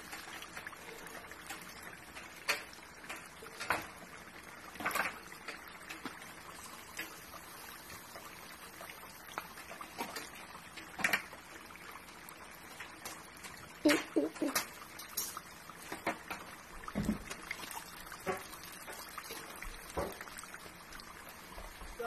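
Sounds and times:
oil sizzling: 0.0 - 22.0
oil popping and spitting: 4.7 - 21.6.

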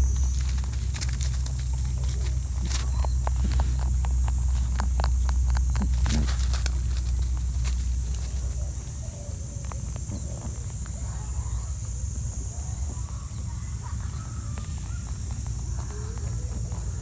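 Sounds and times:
rabbit chewing greens: 0.0 - 17.0.

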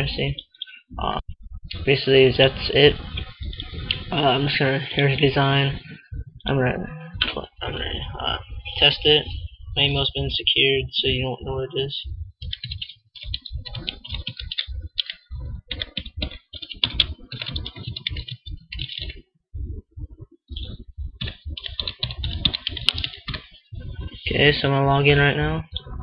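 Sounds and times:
typing on computer keyboard: 12.4 - 19.2, 20.6 - 24.2.

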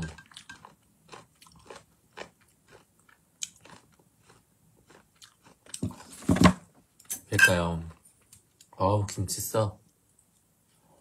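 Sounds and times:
person chewing food: 0.0 - 6.2.

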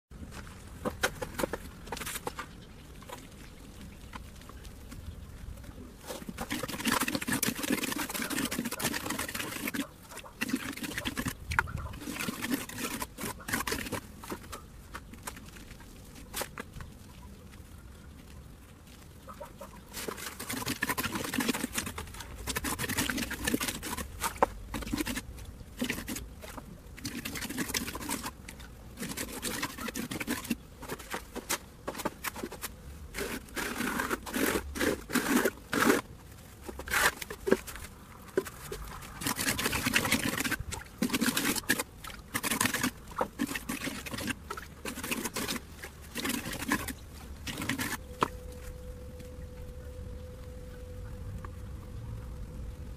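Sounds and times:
trowel scraping wet concrete: 5.9 - 16.9, 19.8 - 48.6.

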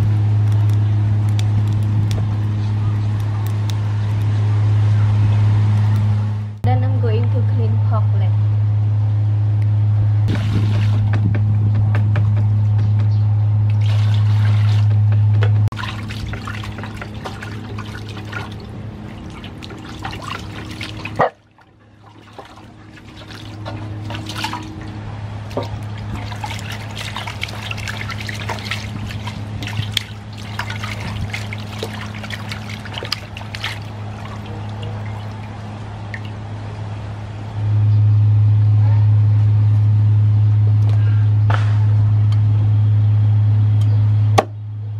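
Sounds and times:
steady low hum: 0.0 - 44.9
water sloshing in metal basin: 10.3 - 11.2, 13.7 - 15.1, 15.7 - 36.5
hands scrubbing meat: 15.7 - 36.3.

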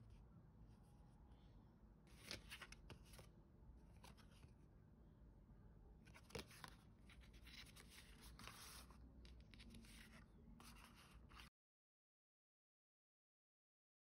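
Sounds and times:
paper rustling and sliding: 2.1 - 3.3, 6.1 - 11.5.

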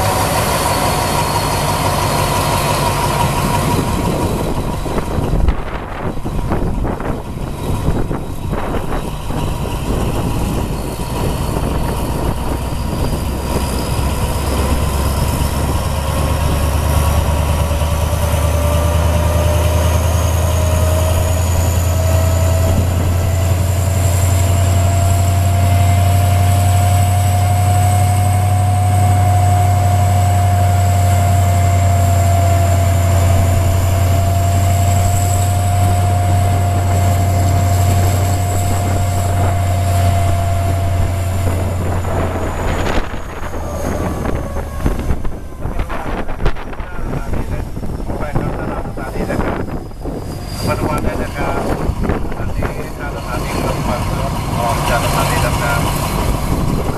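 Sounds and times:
locomotive engine rumble: 0.0 - 56.9
rising whine: 0.0 - 56.9.

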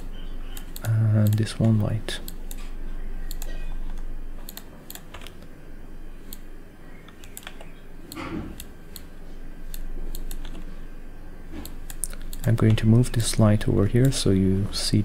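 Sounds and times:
keyboard keys clicking: 0.0 - 5.5, 7.0 - 9.1.

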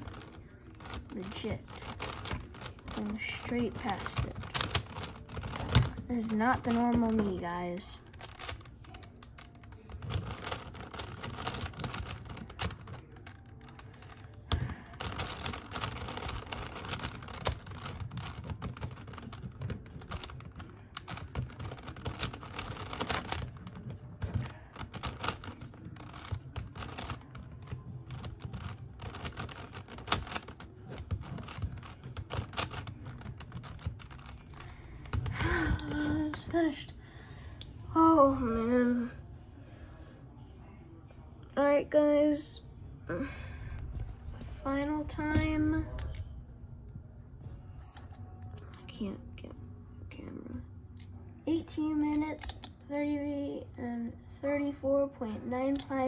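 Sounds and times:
plastic puzzle clicking as twisted: 0.0 - 36.7.

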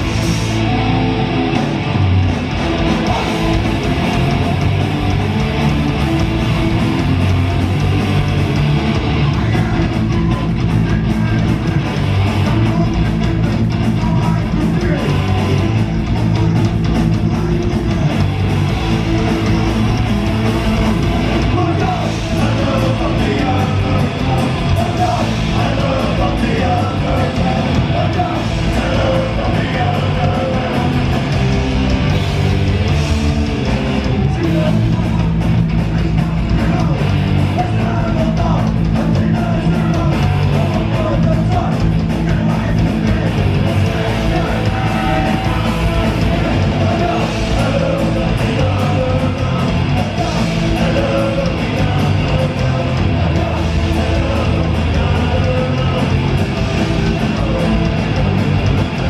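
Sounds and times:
punk rock band playing live: 0.0 - 59.0
shouted vocals: 35.9 - 59.0.

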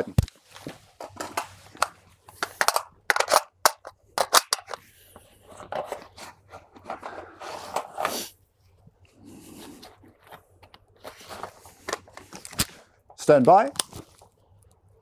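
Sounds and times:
rifle magazine clicks and clacks: 2.6 - 4.8.

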